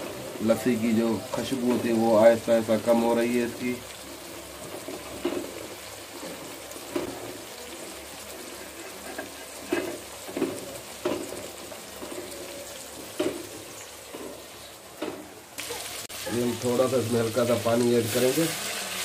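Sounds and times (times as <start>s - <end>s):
spatula scraping and knocking pot: 8.6s - 15.3s.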